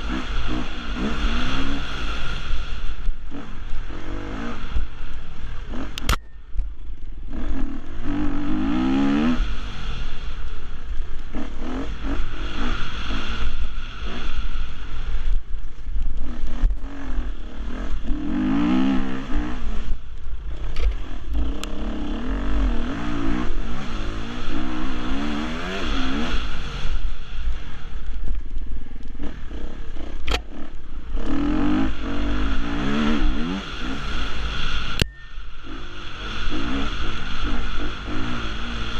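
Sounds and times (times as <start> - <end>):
motorcycle engine revving: 0.0 - 38.9
sharp clicks: 5.9 - 6.7, 30.2 - 30.5.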